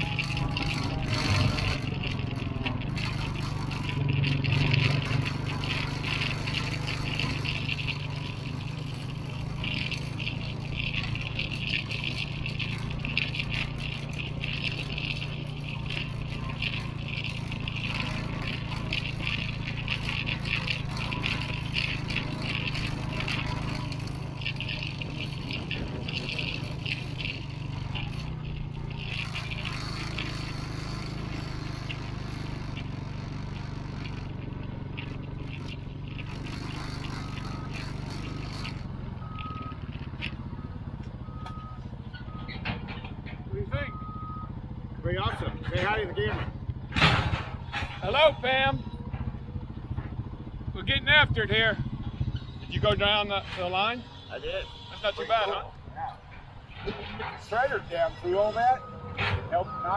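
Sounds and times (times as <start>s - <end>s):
heavy machinery diesel engines: 0.0s - 59.9s
reversing alarm beeping: 40.5s - 42.9s, 43.6s - 44.6s, 57.8s - 59.9s.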